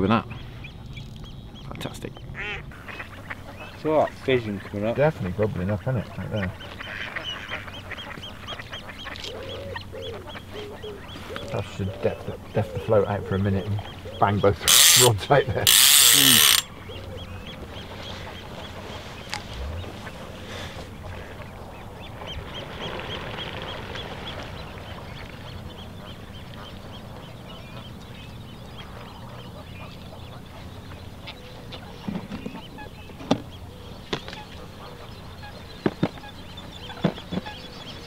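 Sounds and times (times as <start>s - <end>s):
geese honking: 2.4s - 22.5s
sharp clicks or knocks: 14.7s - 15.1s.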